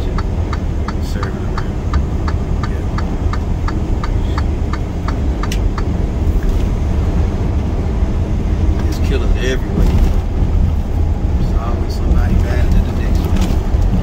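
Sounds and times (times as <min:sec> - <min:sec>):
regular ticking: 0:00.0 - 0:06.9
truck engine and road rumble: 0:00.0 - 0:14.0.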